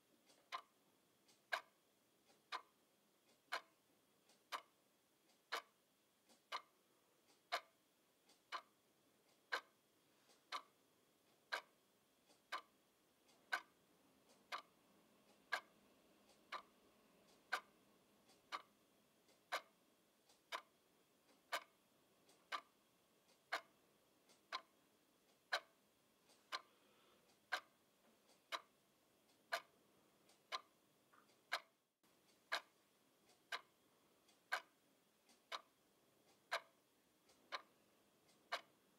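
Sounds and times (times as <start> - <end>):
alarm clock ticking: 0.0 - 38.9
faint clicks: 15.3 - 38.8.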